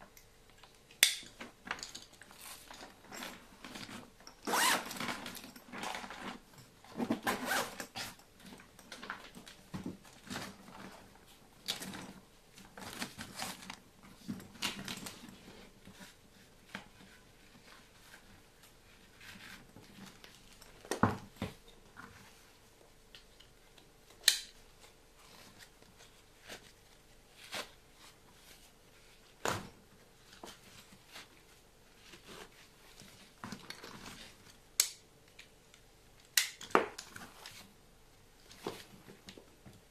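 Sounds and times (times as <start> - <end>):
nylon fabric and straps rustling: 2.2 - 22.7, 24.6 - 34.6.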